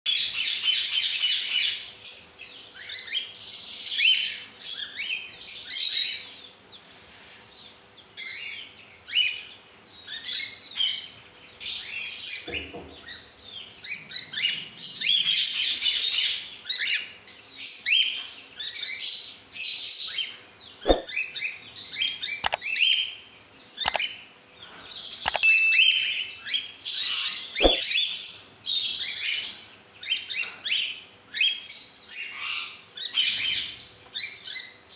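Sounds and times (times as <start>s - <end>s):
sharp clicks: 20.9s - 21.1s, 22.4s - 22.6s, 23.9s - 24.1s, 25.3s - 25.6s.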